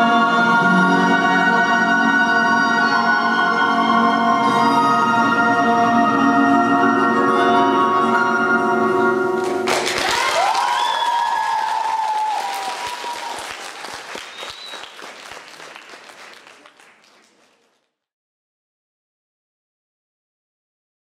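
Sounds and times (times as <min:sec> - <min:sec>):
audience cheering: 0:09.4 - 0:17.4
audience applause: 0:09.4 - 0:18.0.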